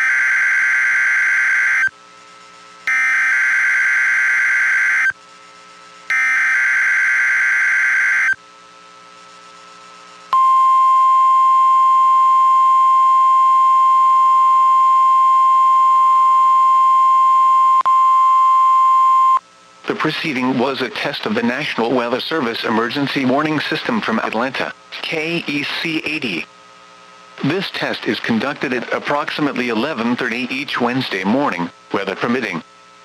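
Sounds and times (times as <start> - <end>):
steady warning alarm tone: 0.0 - 1.9, 2.9 - 5.2, 6.1 - 8.4.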